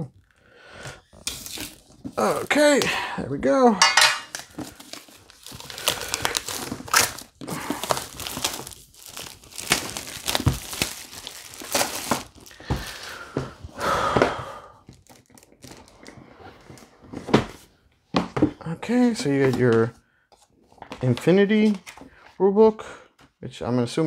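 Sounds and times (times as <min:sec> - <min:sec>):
plastic shrink wrap crinkling: 0:01.1 - 0:02.8, 0:04.3 - 0:13.3, 0:14.9 - 0:16.8.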